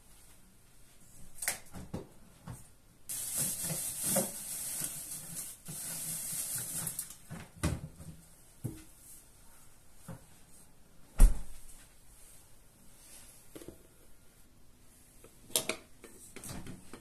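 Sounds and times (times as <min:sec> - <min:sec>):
frozen food bags rustling: 0:03.1 - 0:07.3.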